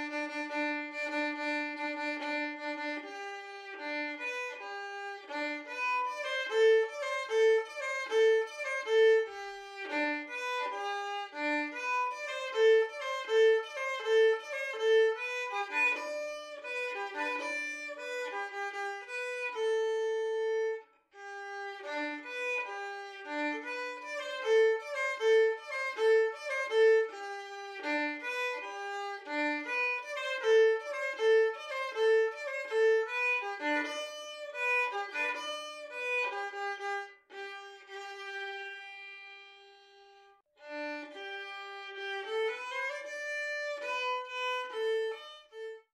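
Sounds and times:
violin melody: 0:00.0 - 0:45.9.

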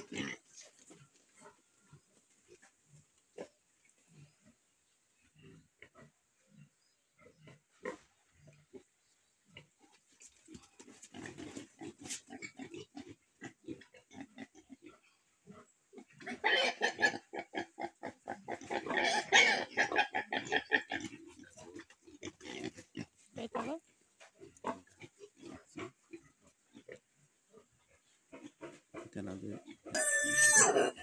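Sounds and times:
piglet grunts and squeaks: 0:16.1 - 0:21.8, 0:28.3 - 0:31.0
piglet squealing: 0:29.9 - 0:31.0.

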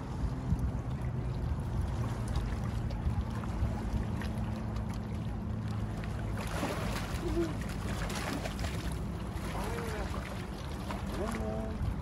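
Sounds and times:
fish splashing at water surface: 0:06.0 - 0:11.7.

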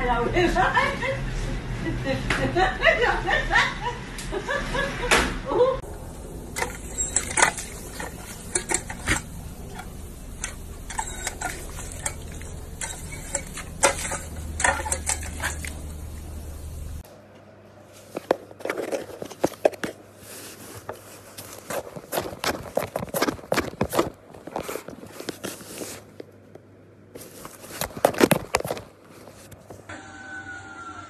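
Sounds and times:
steady low hum: 0:00.0 - 0:18.0
water spraying and splashing: 0:06.0 - 0:17.0.

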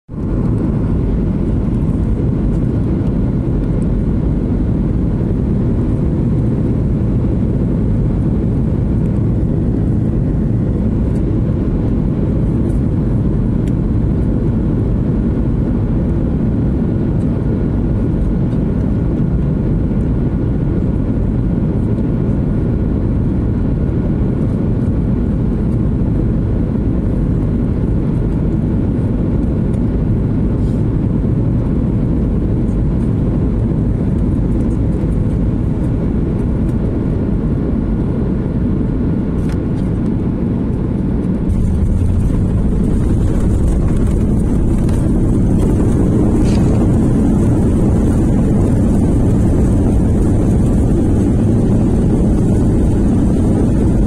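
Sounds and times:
engine and airflow rumble: 0:00.1 - 0:54.0
faint engine tones: 0:39.4 - 0:54.0.

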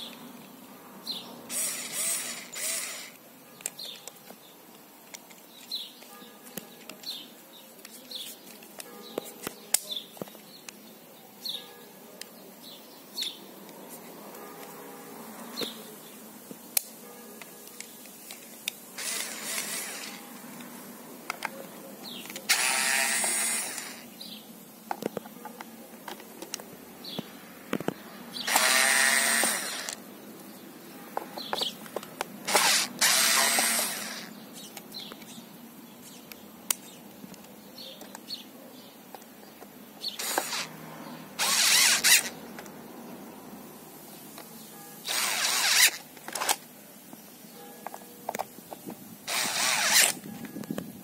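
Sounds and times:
electric screwdriver whirring: 0:01.5 - 0:03.2, 0:19.0 - 0:20.2, 0:22.5 - 0:24.0, 0:28.4 - 0:30.0, 0:32.5 - 0:34.3, 0:40.2 - 0:40.7, 0:41.4 - 0:42.4, 0:45.1 - 0:46.6, 0:49.3 - 0:50.2
screwdriver bit and screws clicking: 0:01.5 - 0:04.2, 0:19.0 - 0:20.2, 0:22.2 - 0:24.0, 0:28.4 - 0:30.0, 0:32.5 - 0:35.2, 0:40.2 - 0:40.7, 0:41.4 - 0:42.7, 0:45.1 - 0:46.6, 0:49.3 - 0:50.3.

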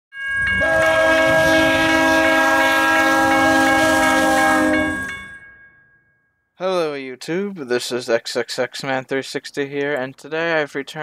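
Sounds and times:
passing train rumble: 0:00.3 - 0:05.5
locomotive air horn: 0:00.5 - 0:05.1.

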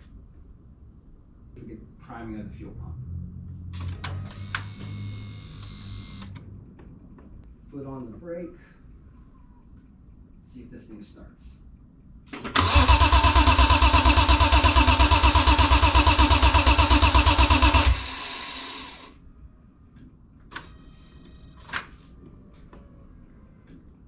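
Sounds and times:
engine cranked by starter: 0:12.3 - 0:19.1.

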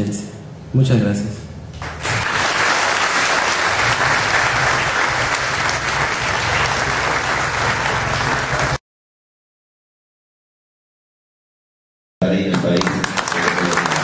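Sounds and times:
audience applauding: 0:01.8 - 0:08.8, 0:12.5 - 0:14.0.

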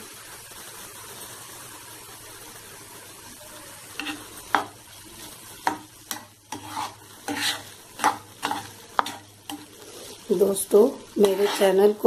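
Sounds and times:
spatula scraping a pan: 0:03.9 - 0:12.0.

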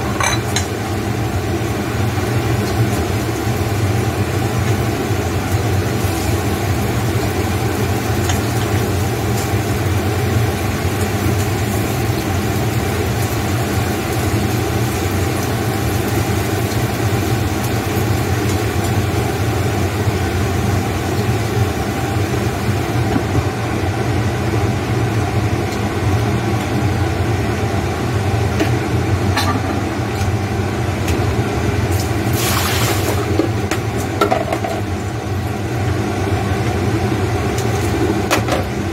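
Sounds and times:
glass lid clattering on pan: 0:00.0 - 0:00.7
meat sizzling in a pan: 0:00.2 - 0:23.1, 0:31.8 - 0:34.7.

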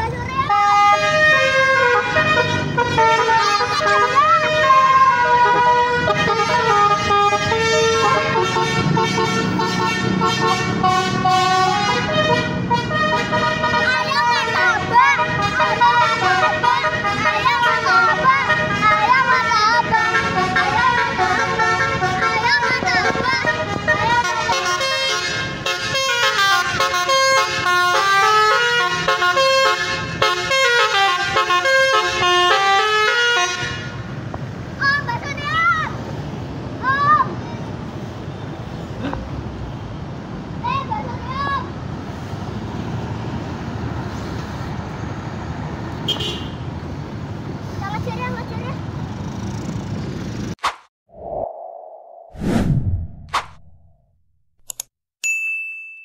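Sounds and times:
traffic noise: 0:00.0 - 0:51.4
multi-tone air horn tune: 0:00.5 - 0:14.5, 0:23.5 - 0:33.9.

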